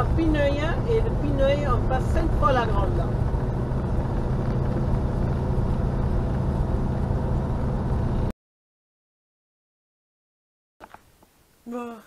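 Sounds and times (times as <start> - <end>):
low hum: 0.0 - 8.3
van engine and road noise: 0.0 - 8.3.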